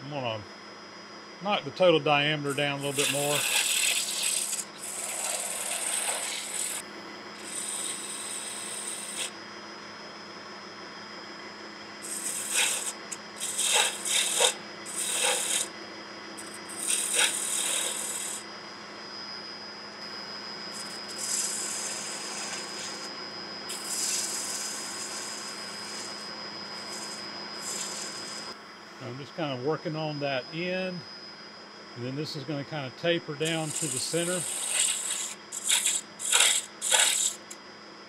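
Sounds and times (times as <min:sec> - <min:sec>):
wood lathe humming: 0:02.6 - 0:09.4, 0:12.0 - 0:15.8, 0:16.4 - 0:19.0, 0:20.0 - 0:28.6, 0:33.4 - 0:37.6
gouge scraping wood: 0:02.9 - 0:06.8, 0:12.1 - 0:15.7, 0:16.4 - 0:18.4, 0:20.8 - 0:23.1, 0:23.7 - 0:26.2, 0:26.8 - 0:28.5, 0:33.5 - 0:37.5.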